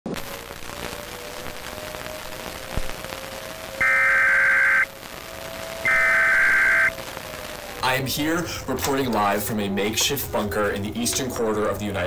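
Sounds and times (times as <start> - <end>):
static hiss: 0.3 - 8.3
faint hum: 2.4 - 10.9
electronic data burst: 3.8 - 4.9, 5.8 - 6.9.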